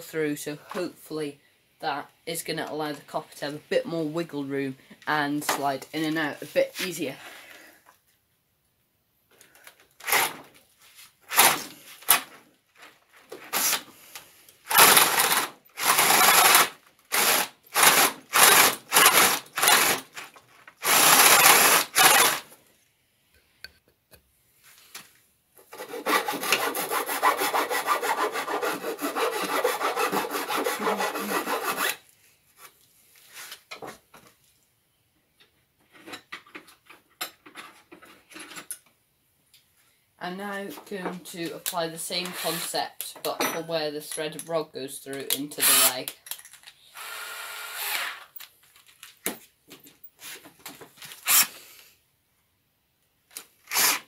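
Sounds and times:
cordless drill boring through wood: 10.0s - 10.4s, 11.3s - 11.7s, 14.7s - 20.2s, 20.8s - 22.4s, 26.1s - 32.0s, 45.6s - 46.0s, 46.9s - 48.4s, 51.2s - 51.6s, 53.7s - 54.0s.

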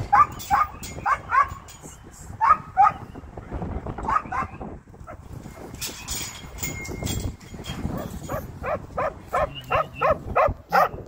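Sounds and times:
dog barking: 8.3s - 11.0s.

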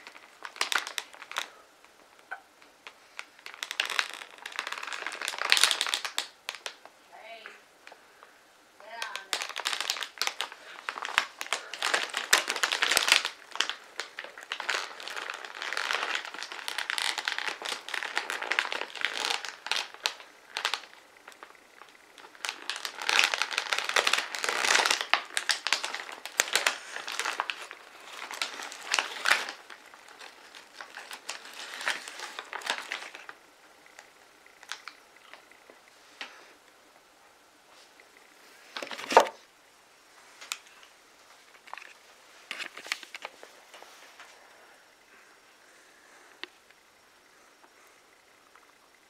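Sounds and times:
foil chip bag crinkling: 0.0s - 2.0s, 2.8s - 6.9s, 8.8s - 35.6s, 38.7s - 39.4s, 41.5s - 44.2s.

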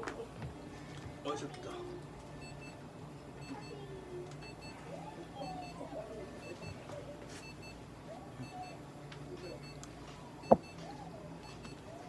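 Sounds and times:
high double beeps: 10.5s - 10.8s.

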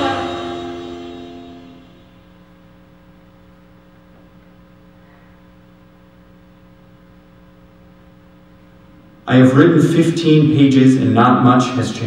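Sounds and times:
faint steady tones: 0.0s - 3.9s
low electrical hum: 0.0s - 12.0s.

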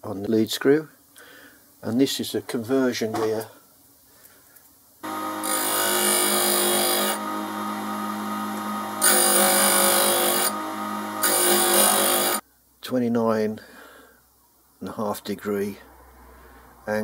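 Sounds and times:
grinder motor humming: 5.0s - 12.4s
tool bit grinding on wheel: 5.0s - 12.4s.

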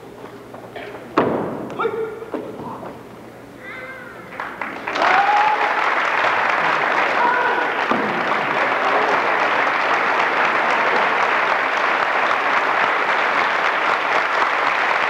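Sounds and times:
crowd cheering: 3.6s - 15.0s
audience applause: 4.2s - 15.0s.

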